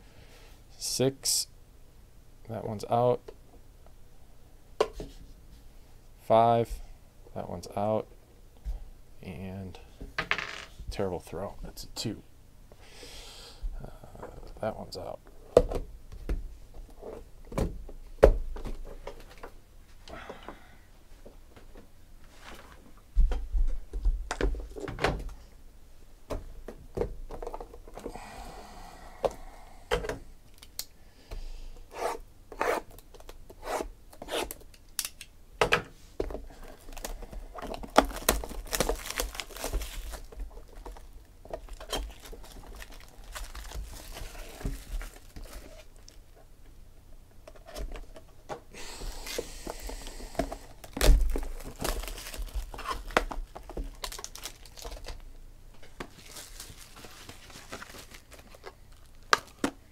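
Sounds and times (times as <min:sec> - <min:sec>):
plastic wrap crinkling and tearing: 0:36.7 - 0:46.2, 0:50.8 - 0:55.2, 0:56.0 - 0:59.7.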